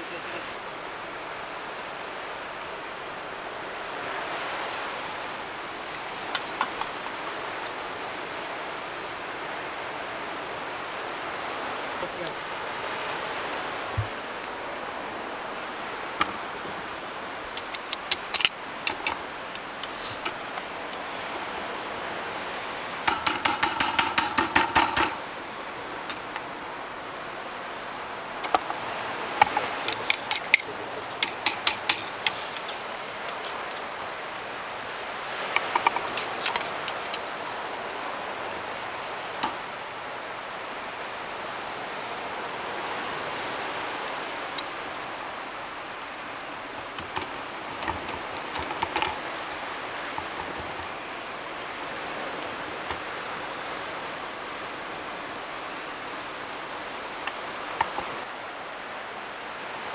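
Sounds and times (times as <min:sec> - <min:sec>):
knife rattling on wire grill basket: 0:23.1 - 0:25.2, 0:31.2 - 0:32.7.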